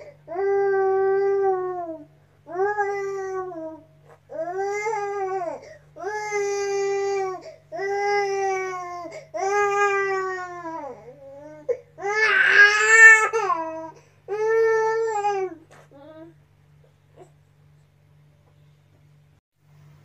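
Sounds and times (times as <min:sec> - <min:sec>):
baby crying: 0:00.3 - 0:16.3.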